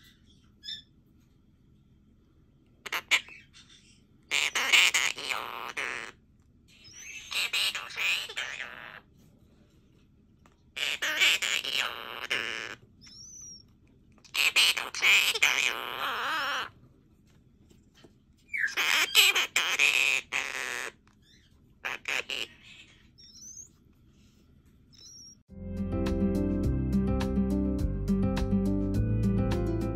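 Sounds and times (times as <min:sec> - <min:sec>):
bird chirps: 0:00.0 - 0:01.0, 0:06.7 - 0:08.9, 0:10.8 - 0:13.7, 0:18.5 - 0:23.8, 0:25.0 - 0:25.5
parakeet singing: 0:00.0 - 0:01.0, 0:02.8 - 0:09.1, 0:10.8 - 0:16.7, 0:18.5 - 0:23.8, 0:25.0 - 0:25.4.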